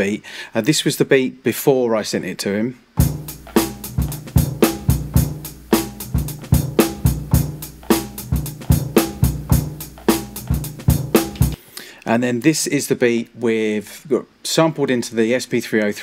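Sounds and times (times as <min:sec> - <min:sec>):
drum beat of kick and snare: 0:03.0 - 0:11.6.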